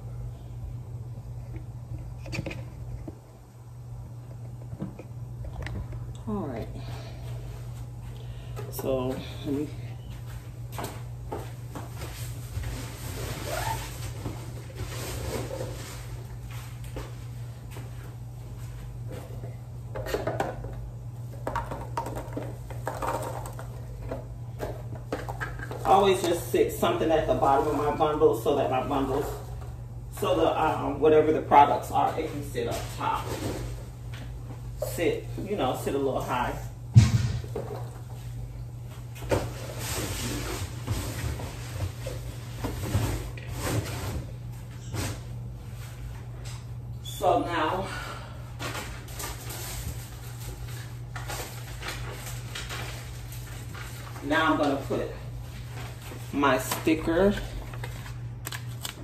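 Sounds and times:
steady low hum: 0.0 - 59.0
rustling while packing boxes: 6.7 - 30.9, 37.4 - 46.6, 48.5 - 59.0.

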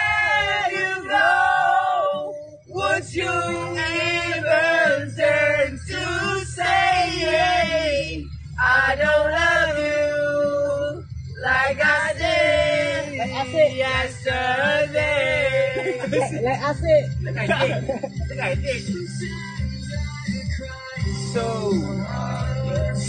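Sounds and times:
young men singing together: 0.0 - 16.4, 20.7 - 23.0.

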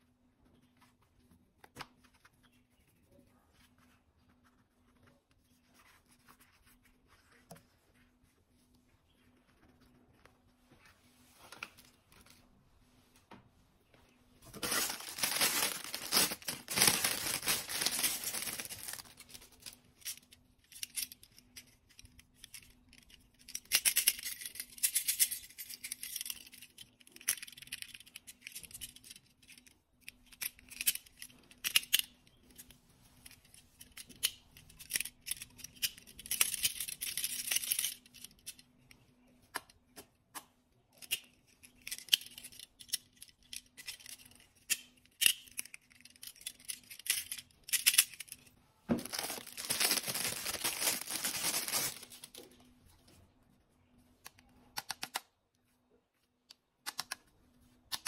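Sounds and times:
plastic packaging crinkling and tearing: 14.4 - 19.9, 49.0 - 52.4
toy handcuffs clicking and rattling: 14.6 - 38.6, 40.9 - 48.5.

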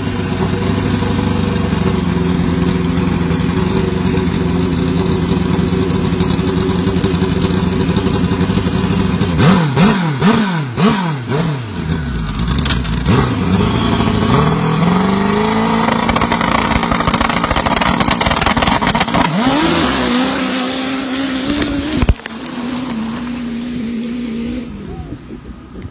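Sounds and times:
motorbike engine revving: 0.0 - 25.6
sharp crack: 14.6 - 23.3.

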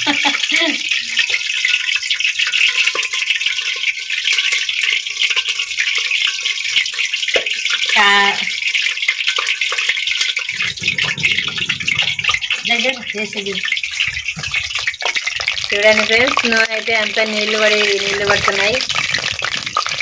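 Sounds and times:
hot oil spitting: 1.3 - 20.0
rain falling: 7.4 - 20.0.

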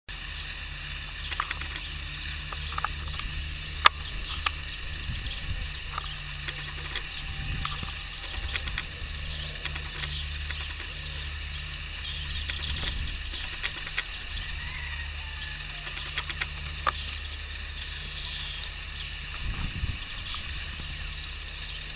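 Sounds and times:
outdoor ambience rumble and hiss: 0.1 - 21.9
faint ticks: 5.7 - 14.6.

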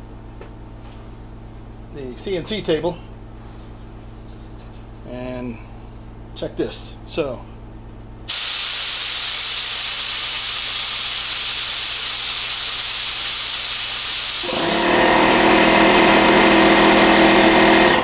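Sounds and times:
compressor hum: 0.0 - 18.0
compressed air hissing: 8.3 - 15.0.

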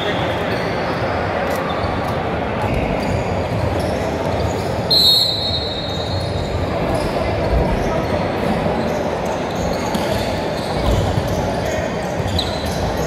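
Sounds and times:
crowd chatter: 0.0 - 13.0
referee's whistle: 4.9 - 6.3.

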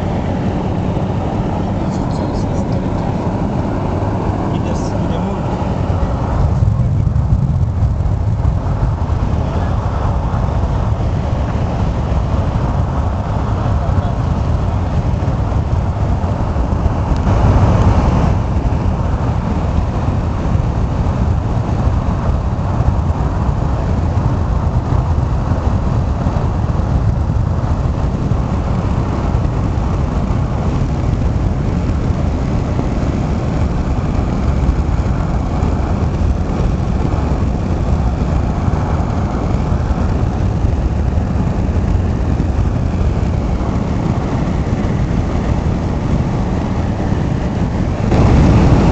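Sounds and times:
road and engine noise inside car: 0.0 - 48.9.

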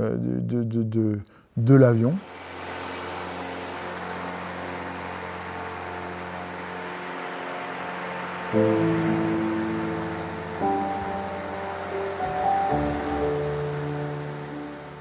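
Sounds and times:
aircraft cockpit rushing hiss: 2.2 - 15.0
low hum: 2.2 - 15.0
music: 6.3 - 15.0.

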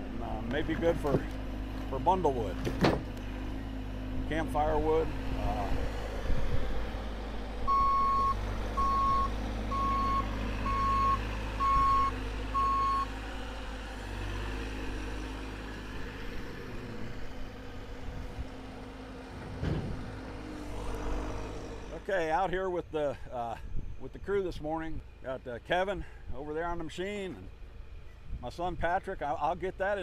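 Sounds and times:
diesel engine running: 0.0 - 24.4
excavator travel alarm beeping: 7.7 - 13.1.

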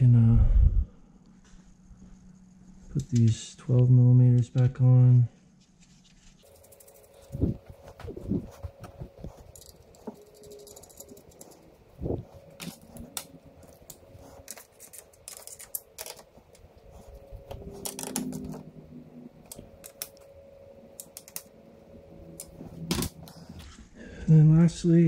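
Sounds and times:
hand tools and bolts clinking: 9.2 - 11.9.

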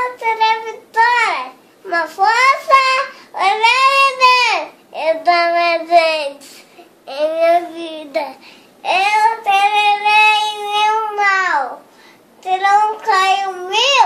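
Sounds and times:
boy singing unaccompanied: 12.4 - 14.0.

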